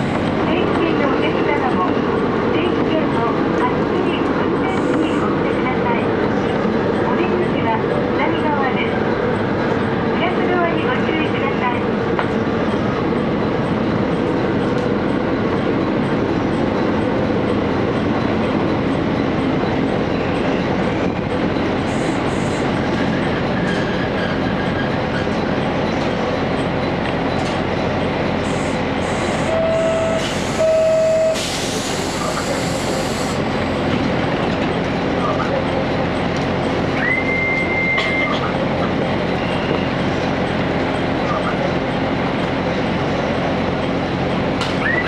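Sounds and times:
train engine and running noise: 0.0s - 45.0s
short beeps: 29.4s - 31.4s.

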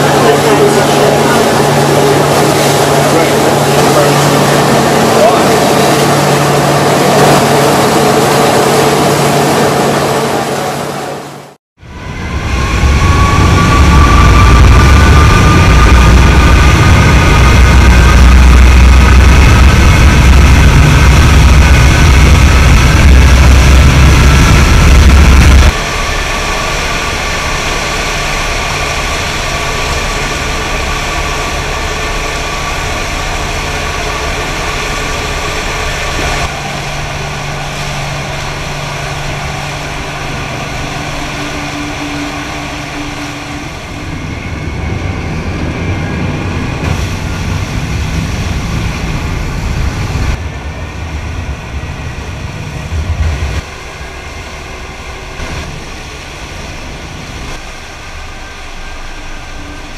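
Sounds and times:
churning wake water: 0.0s - 11.6s, 13.9s - 44.5s, 45.7s - 50.5s
boat engines rumbling and whining: 0.0s - 59.9s.

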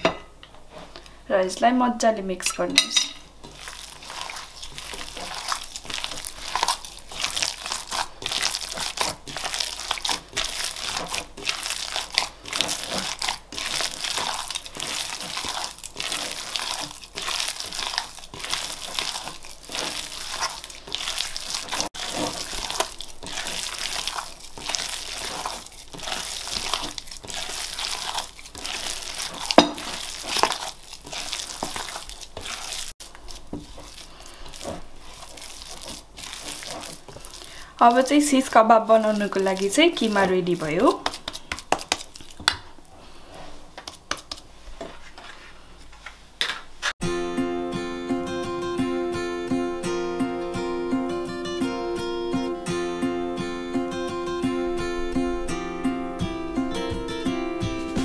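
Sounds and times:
hand squelching minced meat: 2.8s - 45.4s.

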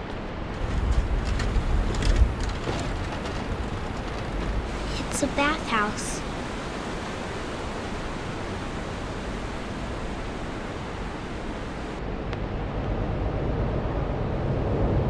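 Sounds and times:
waterfall rushing: 3.4s - 12.0s.

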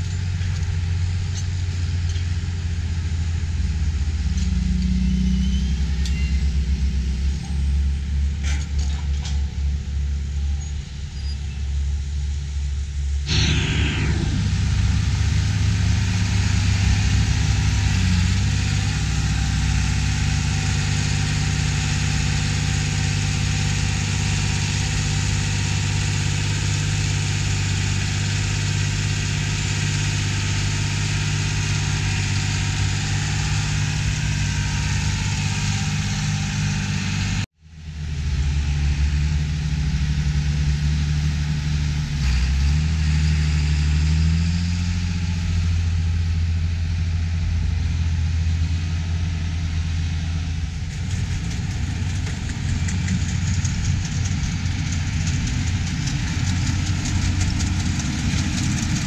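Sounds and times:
tractor diesel engines running: 0.0s - 59.0s
hiss: 13.3s - 36.7s.

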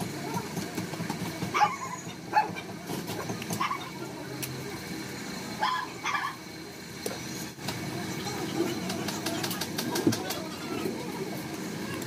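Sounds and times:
dog barking: 1.6s - 2.6s.

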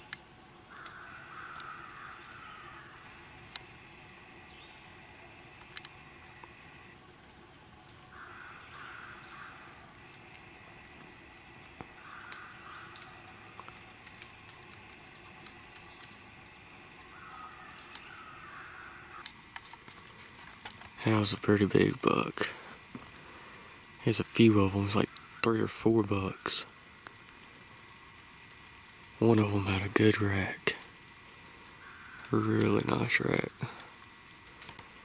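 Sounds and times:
faint ticks: 0.0s - 2.2s, 2.8s - 3.7s, 5.5s - 7.0s, 7.9s - 16.3s, 17.0s - 21.1s, 27.0s - 32.8s, 33.6s - 35.0s
insects droning: 0.0s - 35.0s
bird calling: 0.7s - 3.8s, 8.1s - 10.4s, 11.0s - 26.7s, 31.6s - 34.0s.

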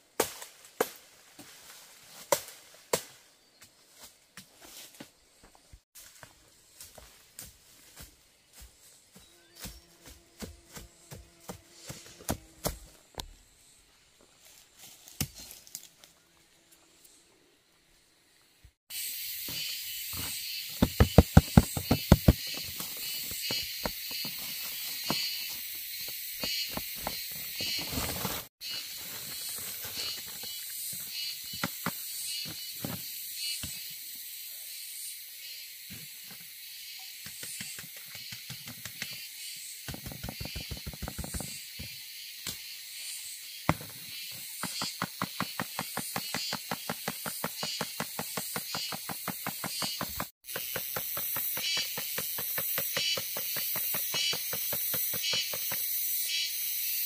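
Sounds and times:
high-pitched insect drone: 18.9s - 57.0s.

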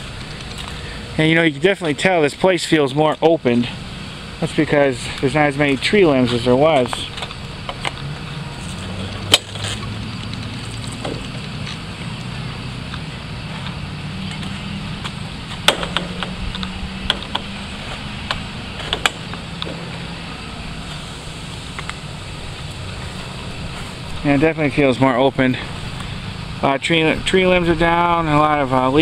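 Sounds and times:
engine humming: 0.0s - 29.0s
sharp clicks and ticks: 9.1s - 17.5s.

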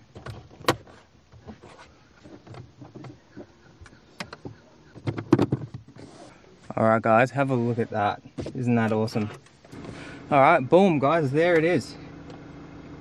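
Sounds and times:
plastic dash trim clicks and knocks: 0.1s - 1.6s, 2.3s - 6.0s.

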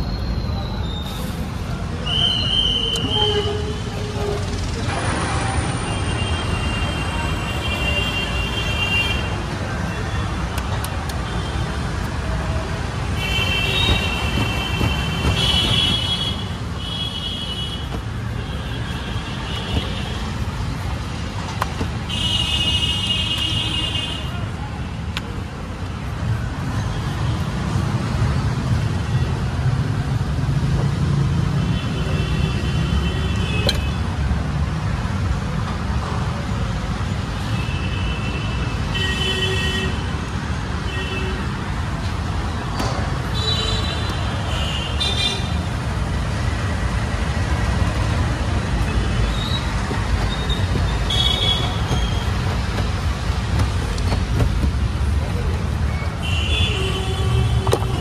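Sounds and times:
road traffic rumbling: 0.0s - 58.0s
vehicle horns honking: 48.9s - 52.6s.

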